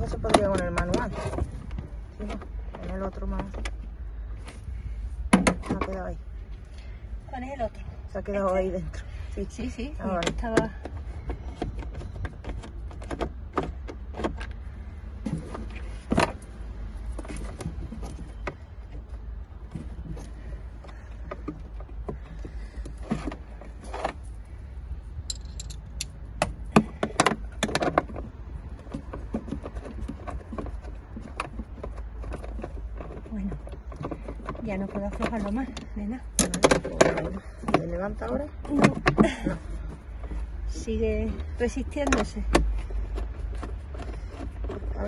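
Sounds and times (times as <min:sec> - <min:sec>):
steady low rumble: 0:00.0 - 0:45.0
socket wrench clinks and rattles: 0:25.3 - 0:26.2.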